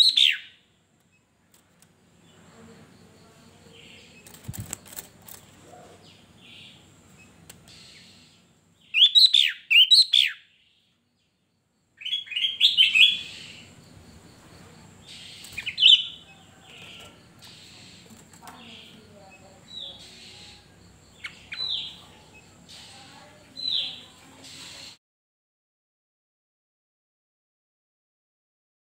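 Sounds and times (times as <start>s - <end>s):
bird singing whistled notes: 0.0s - 0.6s, 7.7s - 10.6s, 12.0s - 13.7s.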